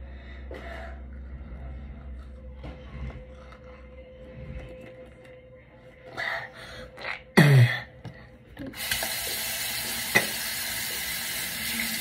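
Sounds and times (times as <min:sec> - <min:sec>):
tap water running into sink: 0:08.8 - 0:12.0.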